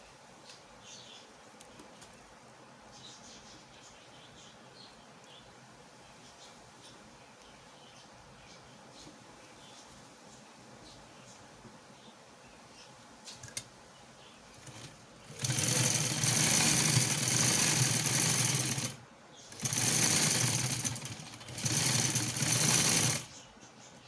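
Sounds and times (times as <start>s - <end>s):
sewing machine stitching: 14.6s - 23.3s.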